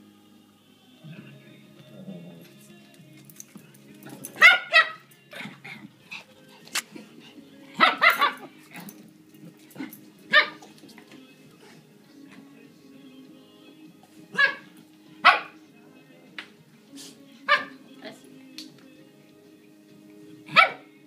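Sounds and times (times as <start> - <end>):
small dogs barking: 4.2 - 5.6, 7.8 - 9.0, 9.8 - 10.8, 14.3 - 15.6, 17.4 - 17.8, 20.5 - 20.9.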